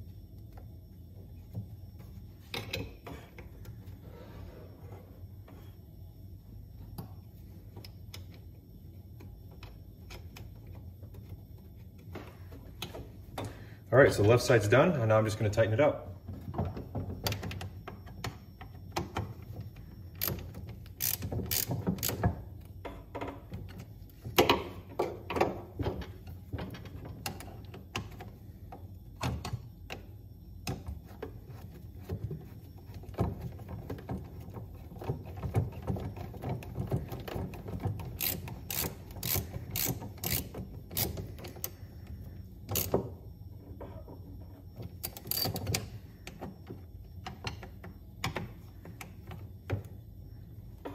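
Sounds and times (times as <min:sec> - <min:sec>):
socket ratchet clicking: 0:20.2 - 0:22.2, 0:38.1 - 0:41.8, 0:45.0 - 0:45.8.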